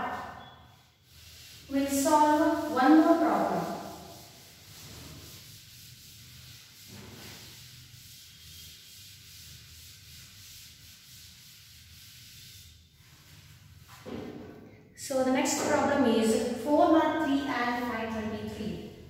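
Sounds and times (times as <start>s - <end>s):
duster rubbing on chalkboard: 0.2s - 14.1s.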